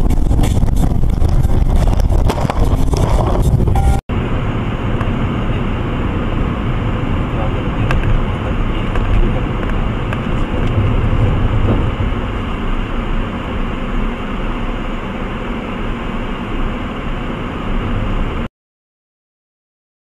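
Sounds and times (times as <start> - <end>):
car engine and road noise: 0.0 - 18.5.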